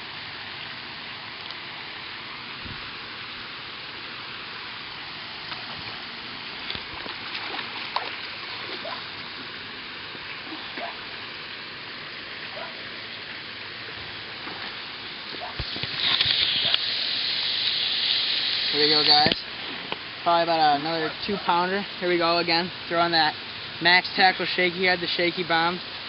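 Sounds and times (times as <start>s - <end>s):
steady hiss: 0.0s - 26.0s
fish splashing at water surface: 6.5s - 9.4s.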